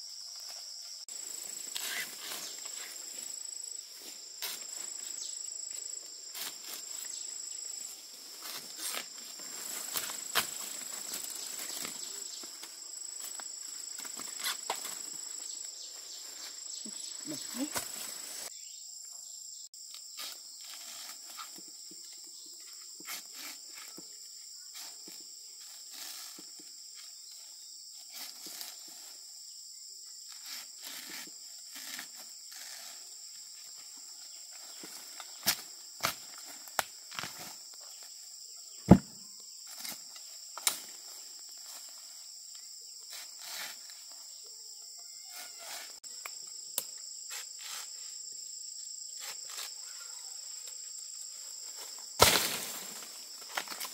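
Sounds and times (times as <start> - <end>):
chorus of insects: 0.0 - 53.9
knocks and rustles: 38.9 - 39.2.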